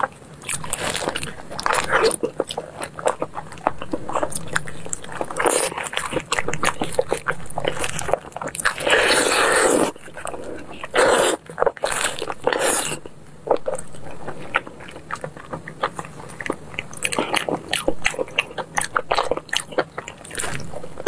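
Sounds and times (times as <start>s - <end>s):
sucking or tearing noise: 0.0s - 14.6s
biting and chewing meat: 0.0s - 21.0s.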